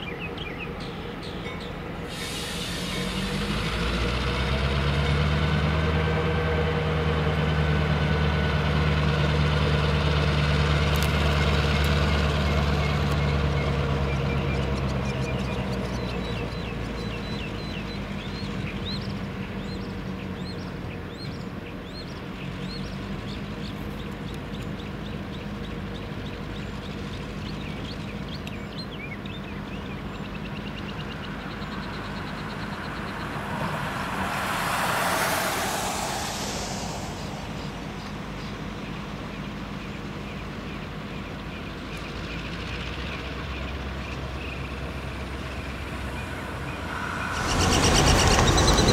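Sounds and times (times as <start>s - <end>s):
hiss: 2.1s - 3.8s, 34.5s - 38.6s
birds chirping: 12.2s - 48.9s.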